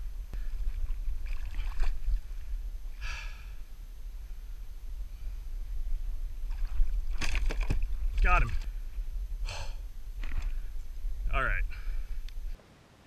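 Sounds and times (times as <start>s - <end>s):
steady low rumble: 0.0s - 12.6s
person exhaling heavily: 3.0s - 3.6s, 9.4s - 9.8s.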